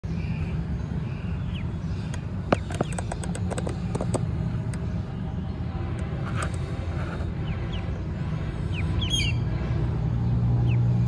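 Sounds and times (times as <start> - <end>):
steady low rumble: 0.0 - 11.0
ducklings chirping: 0.1 - 4.2, 6.6 - 9.9, 10.5 - 11.0.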